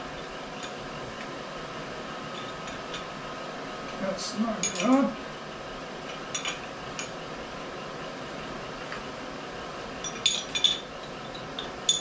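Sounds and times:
workshop background noise: 0:02.2 - 0:08.0.

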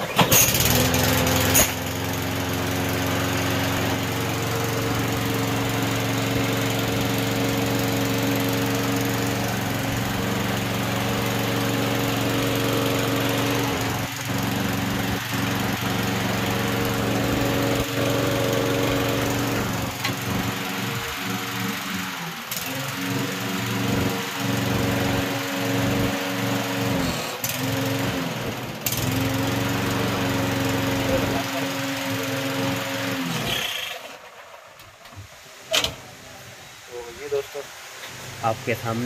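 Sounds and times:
lawn mower engine starting: 0:00.0 - 0:36.2.

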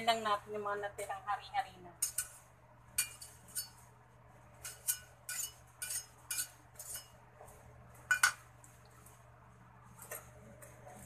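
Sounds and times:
utensil scraping a steel wok: 0:02.0 - 0:07.2.

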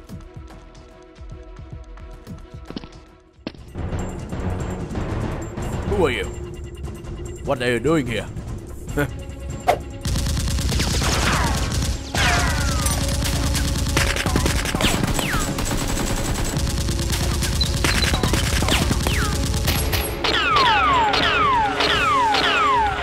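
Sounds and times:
rapid automatic gunfire: 0:10.0 - 0:21.4.

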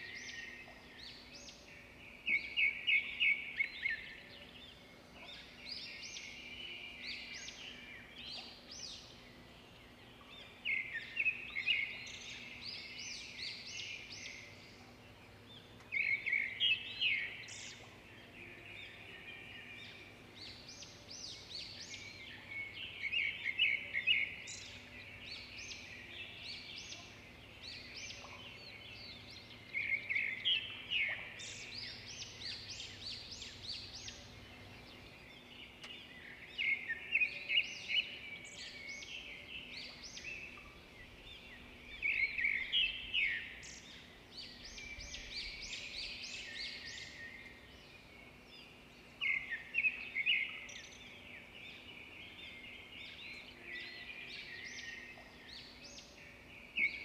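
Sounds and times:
faint steady hum: 0:00.0 - 0:57.0.

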